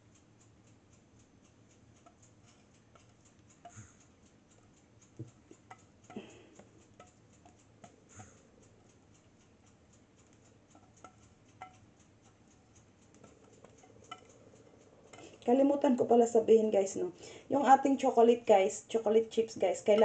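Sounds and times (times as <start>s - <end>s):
whisk knocking metal bowl: 10.7s - 14.4s, 17.6s - 20.0s.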